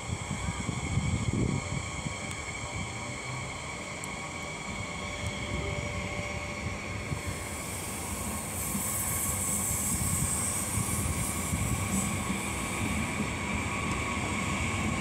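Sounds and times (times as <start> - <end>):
electric train whine: 0.0 - 15.0
train hiss: 0.0 - 15.0
train low rumble: 0.0 - 15.0.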